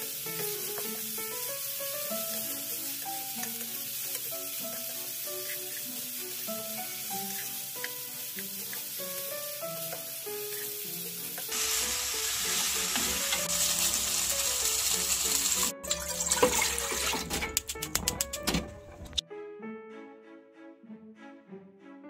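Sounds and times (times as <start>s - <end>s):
food sizzling in oil in a pan: 0.0s - 16.9s
soft background music: 0.0s - 22.0s.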